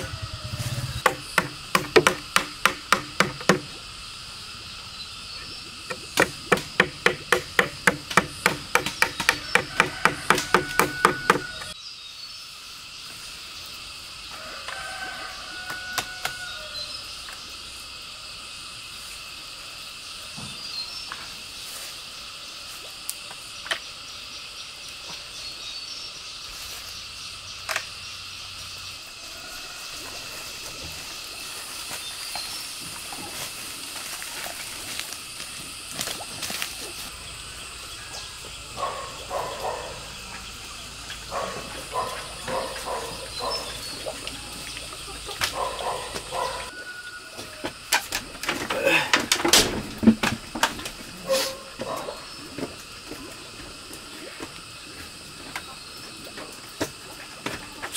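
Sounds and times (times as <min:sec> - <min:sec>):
insect drone: 0:00.0 - 0:57.9
hammer driving nails into bamboo: 0:01.0 - 0:03.7, 0:06.2 - 0:11.6.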